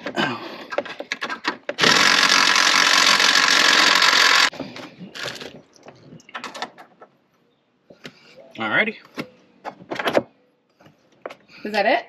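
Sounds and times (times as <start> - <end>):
power drill drilling: 1.8 - 4.6.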